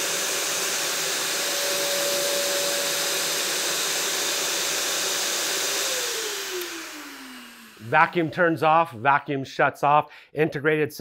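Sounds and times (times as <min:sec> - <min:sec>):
vacuum motor whine and airflow: 0:00.0 - 0:08.5.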